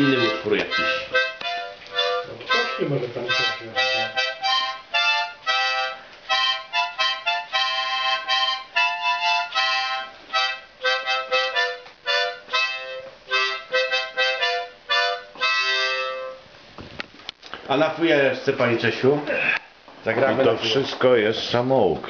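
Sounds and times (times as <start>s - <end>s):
harmonica playing chords: 0.0s - 16.4s.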